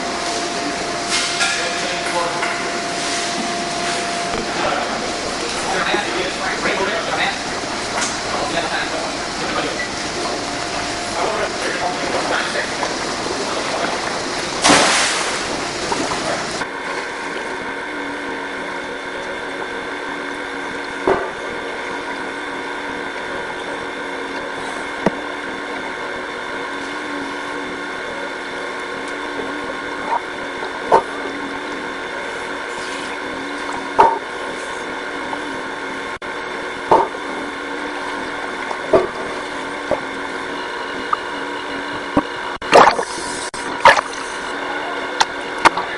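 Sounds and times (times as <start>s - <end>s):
water splashing and sloshing: 0.0s - 17.8s, 36.9s - 44.6s
muffled underwater pool hum: 0.0s - 45.9s
sharp underwater clicks: 43.8s - 44.2s.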